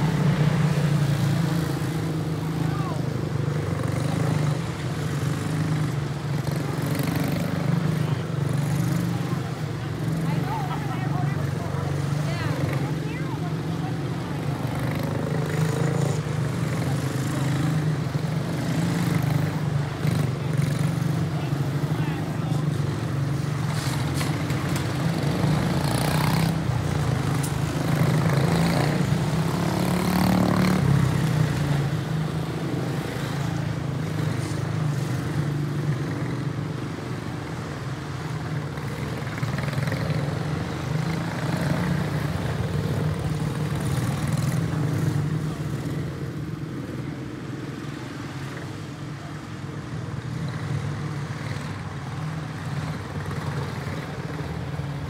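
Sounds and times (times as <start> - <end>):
race car engines droning: 0.0 - 55.0.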